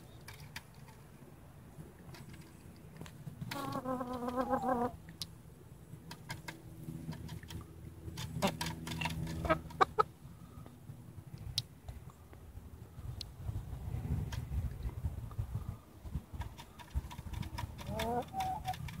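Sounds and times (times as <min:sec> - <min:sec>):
hens clucking: 0:03.4 - 0:05.2, 0:08.2 - 0:10.2, 0:16.5 - 0:19.0.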